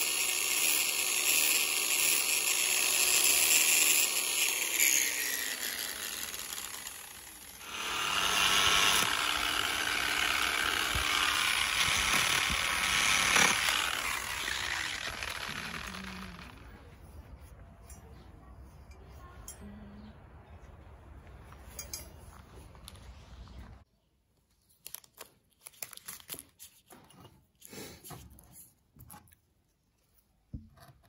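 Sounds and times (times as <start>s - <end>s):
angle grinder polishing: 0.0s - 16.8s.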